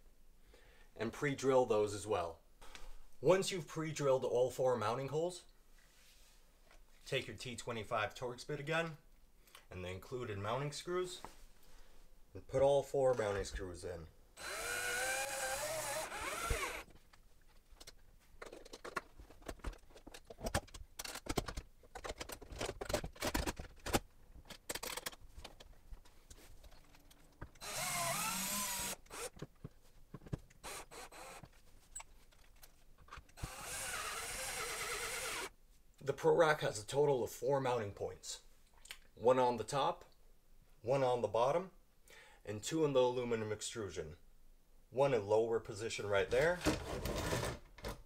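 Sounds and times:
cordless drill whining: 14.4s - 16.9s, 27.6s - 29.4s, 30.6s - 31.5s, 33.4s - 35.5s
handling clicks and knocks: 16.9s - 27.6s.

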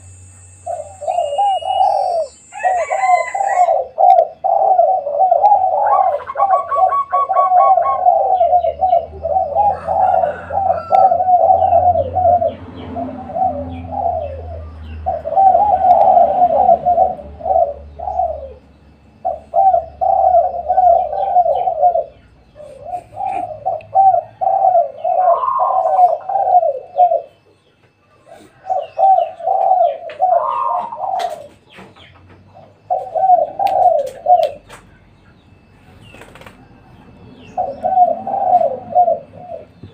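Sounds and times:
doves cooing: 0.0s - 39.9s.

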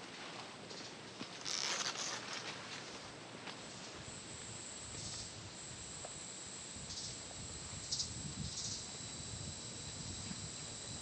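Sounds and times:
insects buzzing: 3.6s - 11.0s
insects chirping: 3.8s - 11.0s.

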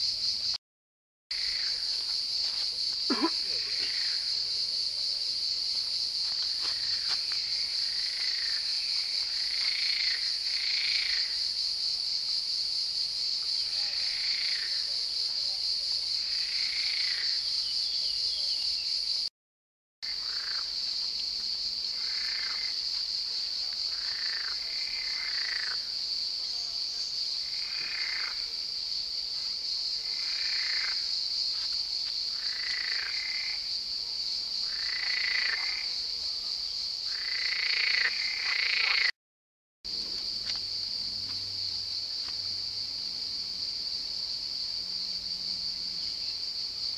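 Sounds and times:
frogs croaking: 1.3s - 5.6s, 6.2s - 12.0s, 13.3s - 15.1s, 15.7s - 19.2s, 20.0s - 21.0s, 21.8s - 29.1s, 29.8s - 31.6s, 32.2s - 33.8s, 34.5s - 39.1s.

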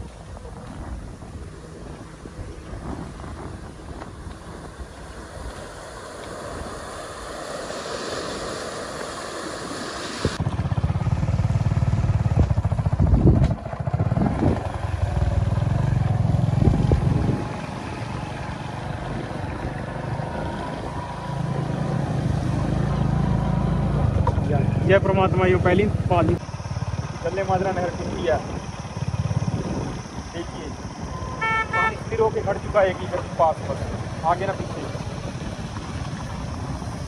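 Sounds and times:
floodwater rushing: 1.2s - 10.4s.

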